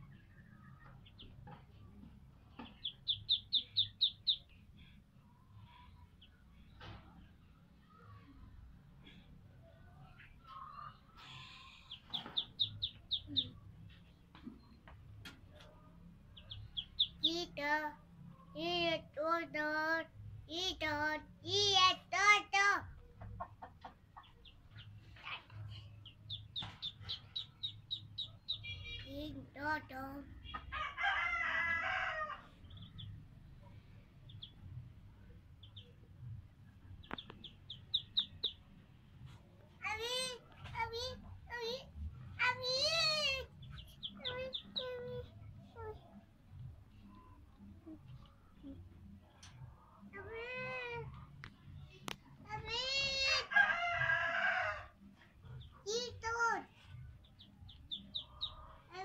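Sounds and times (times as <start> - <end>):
ducklings peeping: 2.6 - 5.0, 10.2 - 13.7, 16.4 - 17.5, 26.0 - 29.7, 34.3 - 34.7, 35.6 - 36.0, 36.8 - 38.7, 42.5 - 46.0, 57.2 - 58.9.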